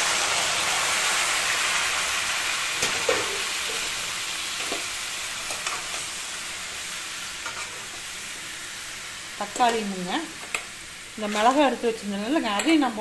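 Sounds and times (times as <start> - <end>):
tomatoes sizzling in hot oil: 0.0 - 13.0.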